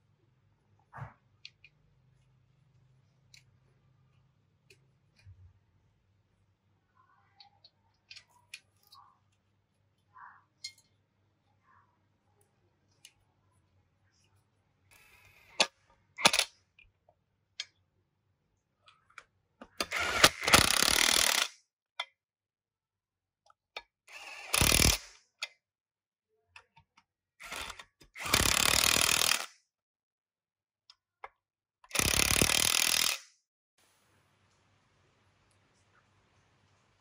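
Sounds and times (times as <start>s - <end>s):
power driver running bolts: 31.9s - 33.2s.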